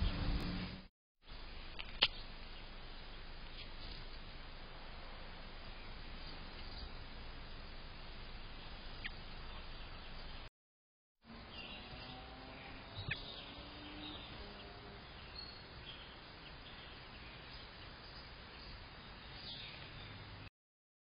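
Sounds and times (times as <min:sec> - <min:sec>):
outdoor background hiss: 0:00.0 - 0:10.5, 0:11.3 - 0:20.5
faint bird chirps: 0:11.4 - 0:20.3.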